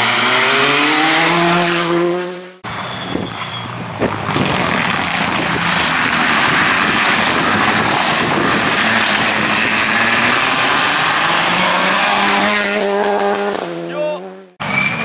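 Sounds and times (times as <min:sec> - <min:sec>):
tyres on gravel: 0:03.2 - 0:13.6.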